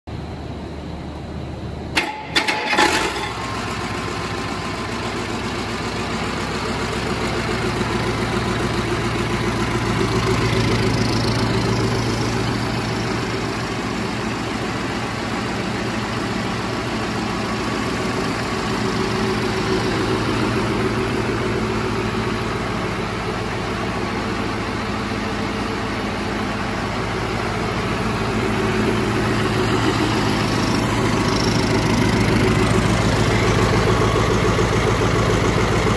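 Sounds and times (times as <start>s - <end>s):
diesel engine idling: 0.1s - 35.9s
diesel engine bangs: 1.9s - 4.2s.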